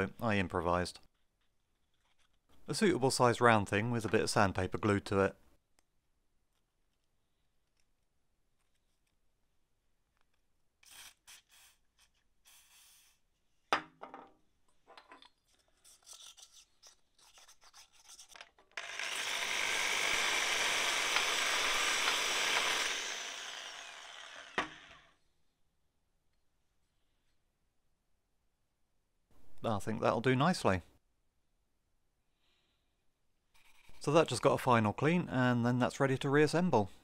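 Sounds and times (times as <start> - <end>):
sandpaper scraping inside cylinder: 10.8 - 13.2.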